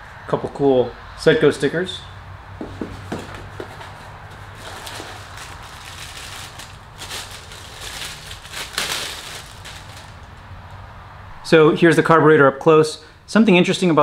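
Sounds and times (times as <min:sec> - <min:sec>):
plastic bag crinkling: 0:03.2 - 0:10.4.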